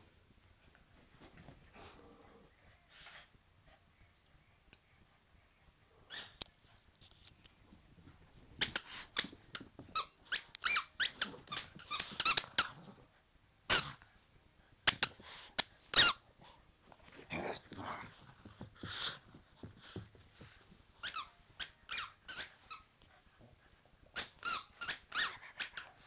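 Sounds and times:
squeaky ball squeaking: 8.6s - 12.7s, 16.0s - 16.2s, 21.0s - 22.8s, 24.2s - 25.8s.

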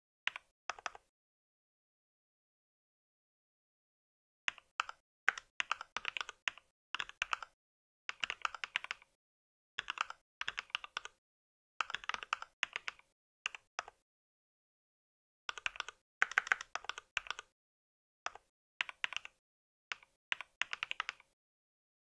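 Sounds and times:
mechanical keyboard typing: 0.3s - 1.0s, 4.5s - 9.2s, 9.8s - 11.2s, 11.8s - 14.0s, 15.5s - 17.5s, 18.3s - 21.4s.

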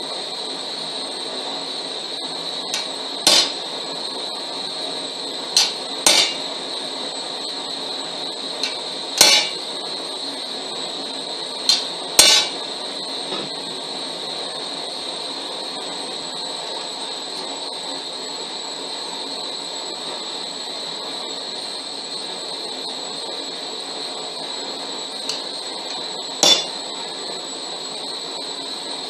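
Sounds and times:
hammer striking steel on anvil: 2.8s - 3.6s, 5.6s - 6.5s, 8.6s - 9.6s, 11.7s - 12.6s, 26.4s - 26.8s.

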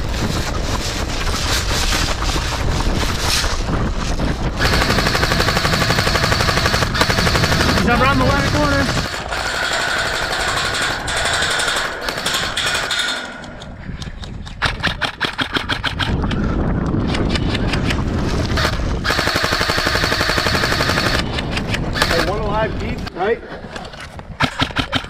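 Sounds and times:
airsoft guns firing rapid shots: 4.5s - 13.2s, 14.6s - 16.4s, 17.2s - 21.3s, 21.9s - 22.4s, 24.4s - 25.0s.

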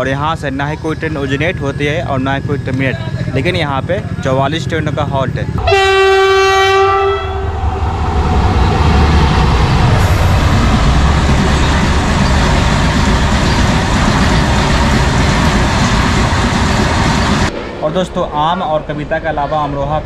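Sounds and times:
train horn: 5.6s - 8.6s
train wheels rumbling on rails: 6.8s - 20.0s.

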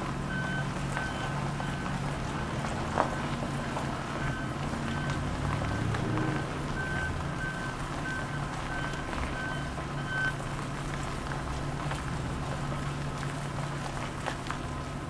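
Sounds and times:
engine rumbling: 0.0s - 15.0s
vehicle reversing alarm beeping: 0.2s - 10.7s.

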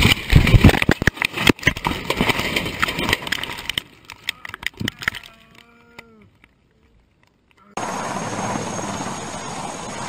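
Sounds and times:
scattered clicks: 2.8s - 7.8s.

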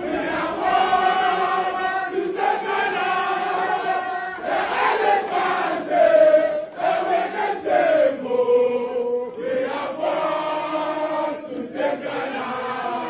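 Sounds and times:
group of people chanting: 0.0s - 13.0s.

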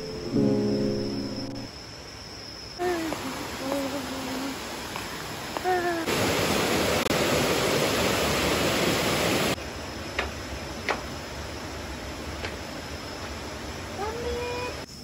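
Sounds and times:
stream rushing over rocks: 2.8s - 9.6s.

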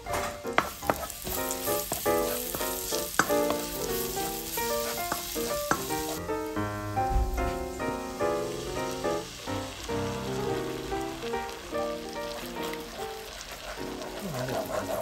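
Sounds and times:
background music: 0.0s - 15.0s
garlic sizzling in a pan: 0.0s - 15.0s
spatula clicking against pan: 3.1s - 3.6s.

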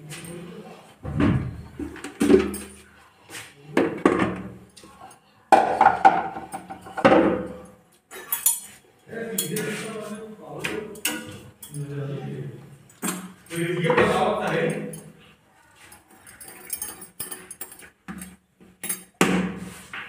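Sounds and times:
steel dishes clinking: 6.3s - 9.9s, 10.9s - 11.8s, 16.2s - 17.9s.

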